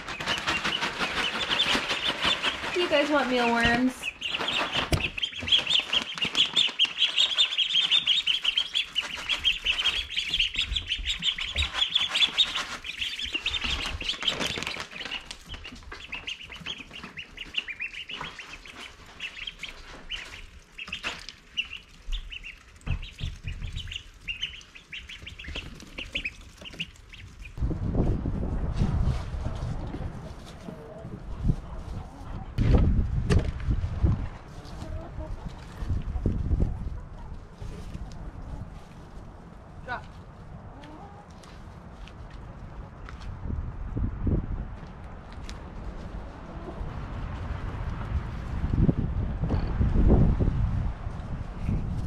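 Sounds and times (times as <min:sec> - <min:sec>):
ducklings peeping: 0:00.0 - 0:27.6.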